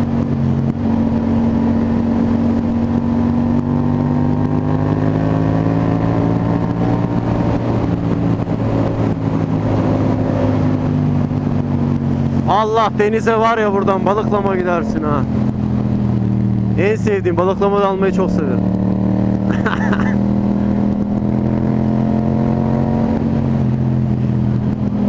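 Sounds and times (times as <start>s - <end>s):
wind rush over microphone: 0.0s - 16.8s
motorcycle engine running: 0.0s - 25.0s.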